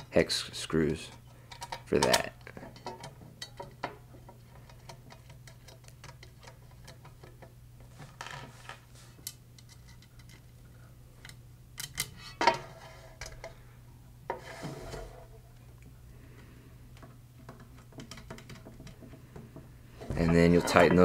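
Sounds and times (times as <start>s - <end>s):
small metal clicks and taps: 1.5s - 7.5s.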